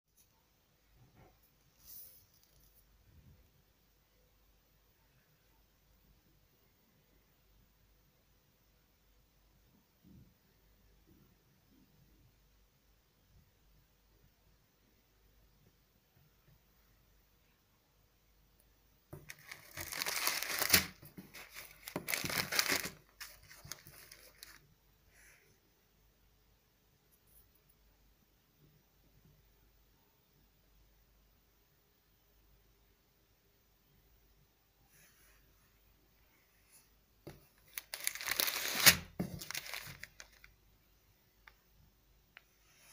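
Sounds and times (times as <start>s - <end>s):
plastic bag crinkling: 19.2s - 24.6s, 37.6s - 40.5s.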